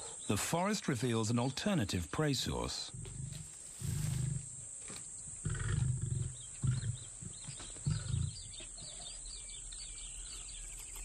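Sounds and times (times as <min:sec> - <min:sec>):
birds chirping faintly: 0:00.0 - 0:11.0
lion grunting roars: 0:05.4 - 0:08.4.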